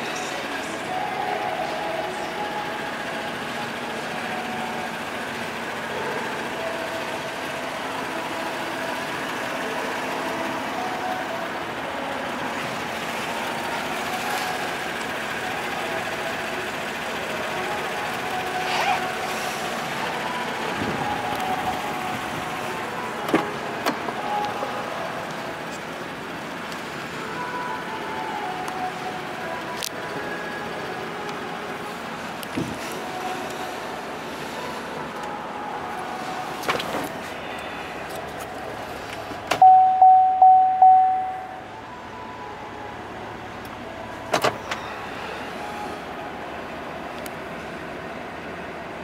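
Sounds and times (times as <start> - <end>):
mechanical hum: 0.0 - 49.0
warning chime dinging: 39.6 - 43.2.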